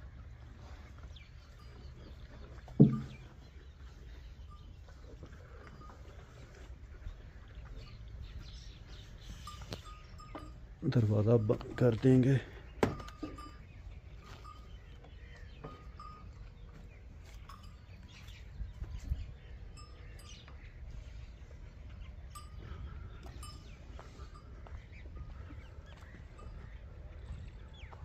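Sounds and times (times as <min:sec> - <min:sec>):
soft knocks: 0:02.7 - 0:03.3.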